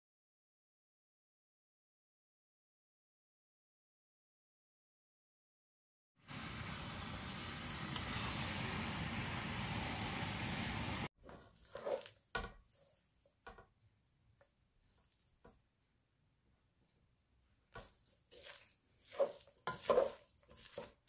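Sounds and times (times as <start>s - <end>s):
meat sizzling in a frying pan: 6.3s - 11.1s
wooden spoon scraping a pan: 11.2s - 13.7s, 17.7s - 21.0s.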